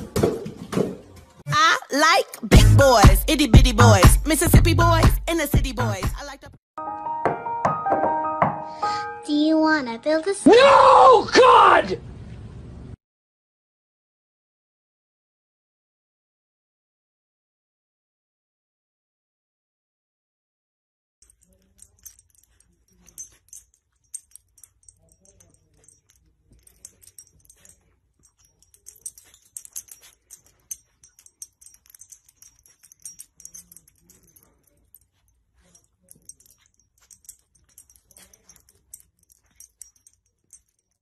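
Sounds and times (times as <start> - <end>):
puppy sniffing and rustling: 26.0 - 40.8.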